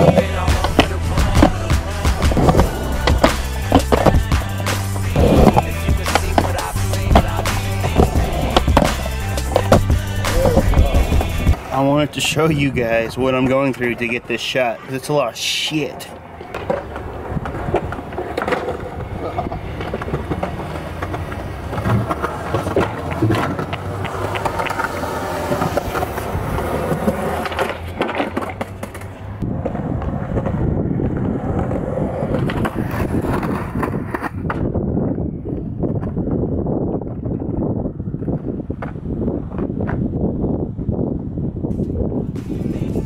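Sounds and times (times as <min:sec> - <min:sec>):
skateboard clacks: 0:00.0 - 0:12.4, 0:16.0 - 0:34.8, 0:38.2 - 0:40.2
skateboard wheels rolling on concrete: 0:00.0 - 0:43.0.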